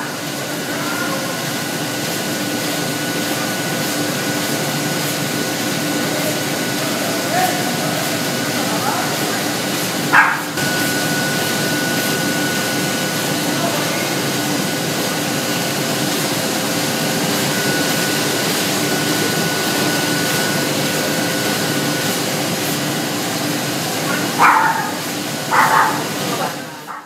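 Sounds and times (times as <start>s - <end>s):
printing press airy hiss: 0.0s - 27.0s
thin high whine: 10.1s - 13.7s, 17.1s - 22.2s.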